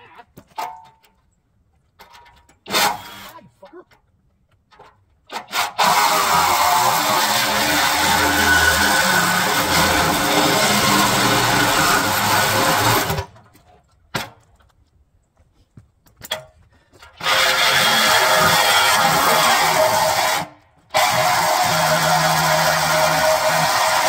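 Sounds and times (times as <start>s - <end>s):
reciprocating saw cutting steel: 2.7s - 3.4s, 5.3s - 13.3s, 17.2s - 24.0s.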